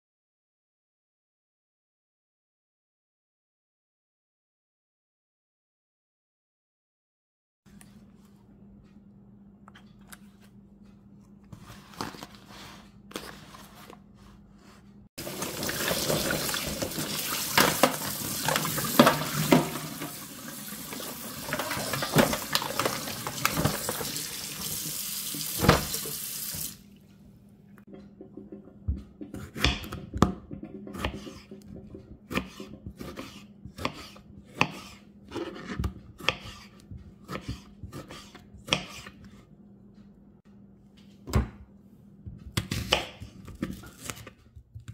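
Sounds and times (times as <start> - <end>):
tap water running into tray: 15.2 - 26.8.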